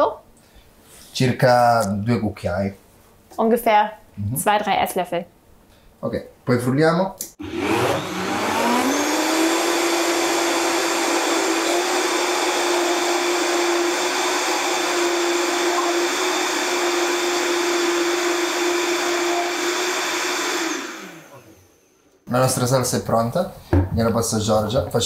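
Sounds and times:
blender running: 7.4s - 21.9s.

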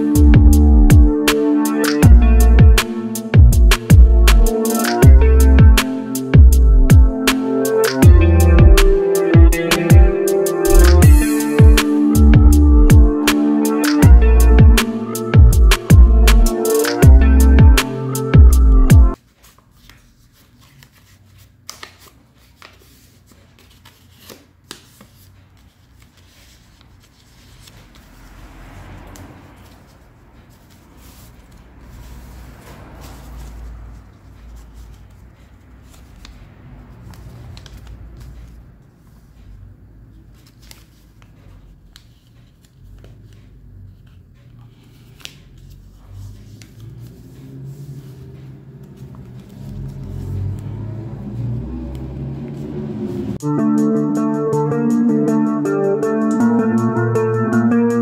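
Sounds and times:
paper rustling while folded: 19.2s - 28.4s, 29.5s - 39.5s, 40.1s - 51.0s.

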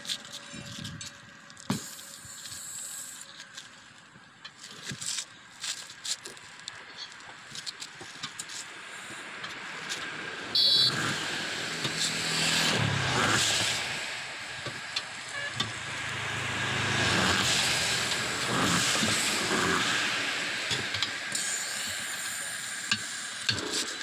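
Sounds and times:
road traffic passing: 0.0s - 24.0s
high-pitched beep: 10.6s - 10.9s.

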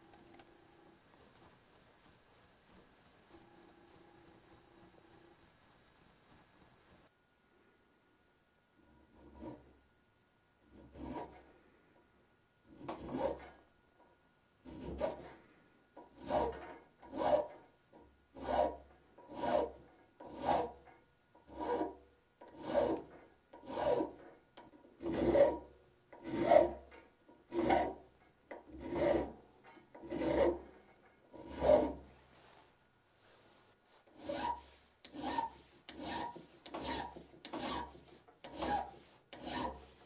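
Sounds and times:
file scraping metal: 8.8s - 9.7s, 10.6s - 11.5s, 12.7s - 13.6s, 14.6s - 32.2s, 34.0s - 40.0s.

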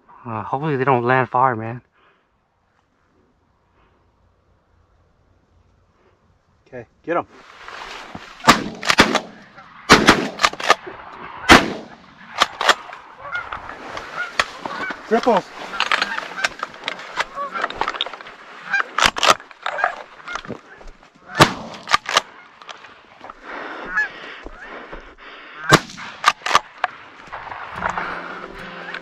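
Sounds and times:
shotgun blasts: 8.4s - 10.9s, 11.5s - 12.9s, 21.3s - 22.3s, 25.7s - 26.7s
geese honking: 11.4s - 21.5s, 22.2s - 24.8s, 27.8s - 29.0s.

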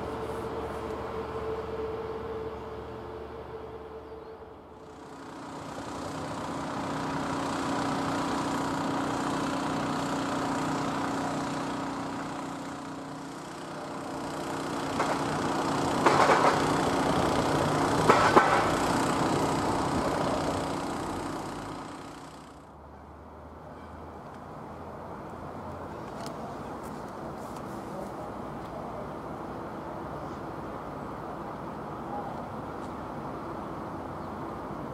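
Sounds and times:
short noisy bursts: 0.0s - 22.7s
diesel engine idling: 0.0s - 34.9s.

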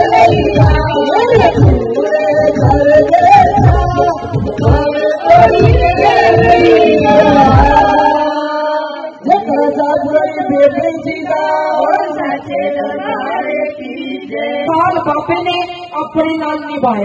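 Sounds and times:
drum beat: 0.0s - 8.2s
women singing devotional song: 0.0s - 16.9s.

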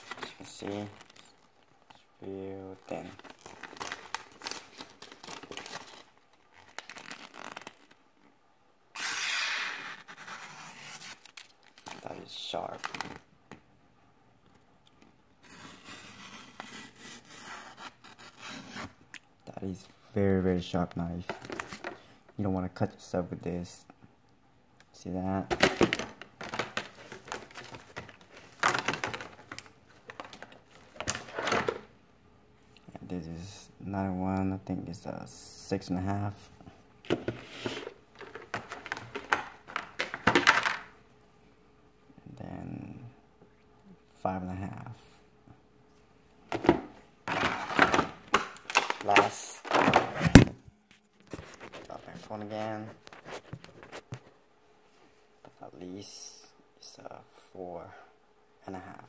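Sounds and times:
paper leaflet rustling: 0.0s - 2.0s, 2.6s - 8.0s, 25.5s - 31.8s, 48.7s - 54.3s
packaging clicks: 3.1s - 8.0s, 25.5s - 31.8s.

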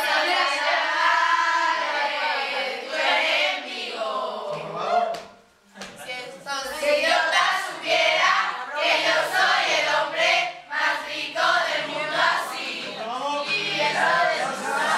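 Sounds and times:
group of girls singing: 0.0s - 5.3s, 6.4s - 14.9s.

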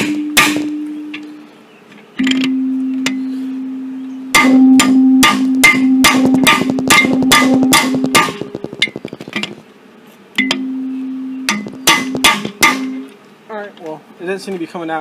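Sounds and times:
hammer striking steel bar: 0.0s - 1.2s, 4.3s - 8.5s, 10.4s - 10.8s, 11.5s - 13.1s
metallic ringing: 0.0s - 1.5s, 2.2s - 9.0s, 10.4s - 13.2s.

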